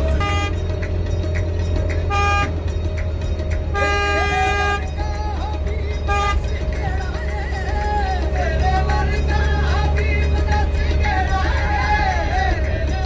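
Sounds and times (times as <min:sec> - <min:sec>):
bus horn honking: 0:00.0 - 0:01.0, 0:01.9 - 0:02.7, 0:03.6 - 0:07.2
bus engine drone: 0:00.0 - 0:13.0
music playing: 0:00.0 - 0:13.0.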